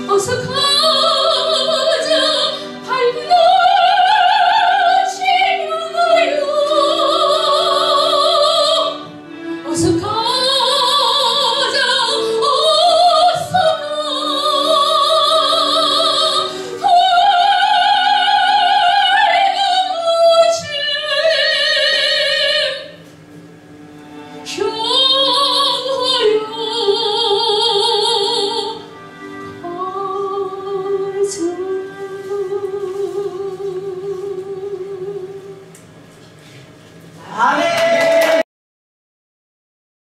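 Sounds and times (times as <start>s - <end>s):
woman singing a hymn operatically: 0.0s - 9.0s, 9.6s - 22.9s, 24.5s - 28.8s, 37.2s - 38.4s.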